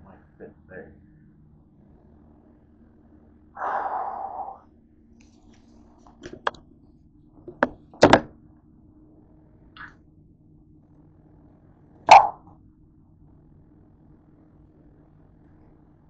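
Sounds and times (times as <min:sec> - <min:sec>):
knocks on a countertop: 0:07.5 - 0:08.3.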